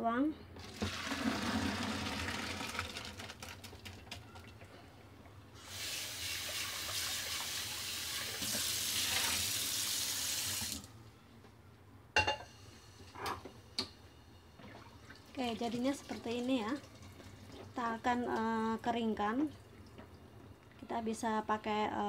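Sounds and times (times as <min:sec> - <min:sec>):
water rushing into a sink: 0:00.6 - 0:04.0, 0:05.6 - 0:10.8
water pouring into a colander: 0:00.6 - 0:04.4, 0:05.7 - 0:10.8.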